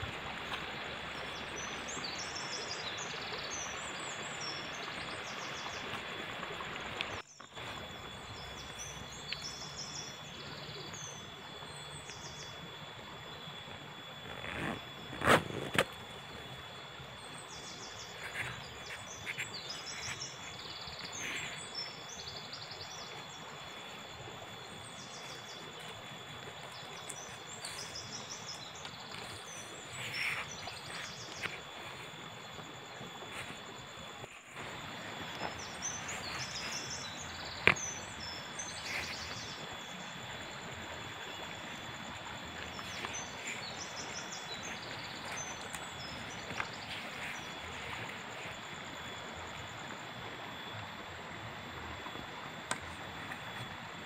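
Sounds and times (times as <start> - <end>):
steady outdoor hiss: 0.0 - 54.0
birds chirping: 7.0 - 49.2
camping gear knocking and rustling: 14.2 - 16.0, 37.5 - 38.0.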